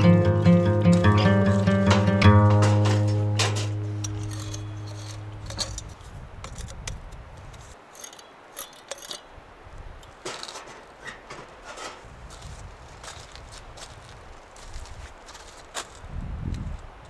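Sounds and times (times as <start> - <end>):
guitar tune: 0.0 - 5.8
footsteps crunching in snow: 0.0 - 6.3, 10.2 - 16.9.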